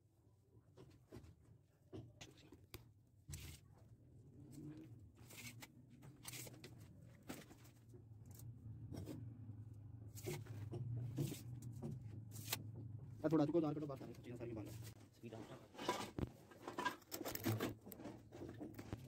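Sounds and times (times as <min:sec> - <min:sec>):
plastic pipes knocking and scraping: 0:10.2 - 0:14.2, 0:14.8 - 0:19.0.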